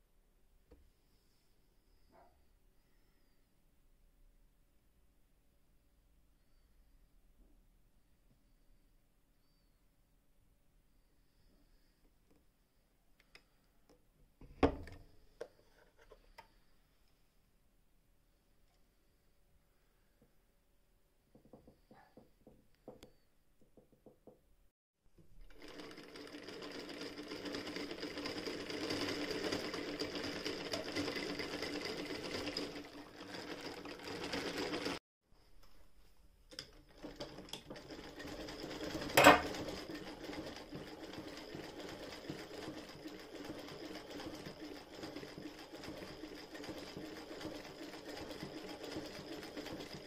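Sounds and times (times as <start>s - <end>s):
sewing machine rattling: 25.4s - 35.0s, 36.5s - 50.0s.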